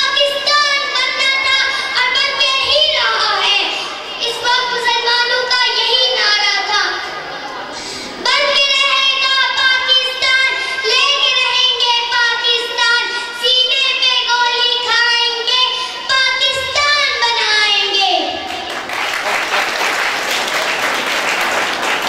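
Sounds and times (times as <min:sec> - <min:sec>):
girl chant-singing into microphone: 0:08.3 - 0:18.5.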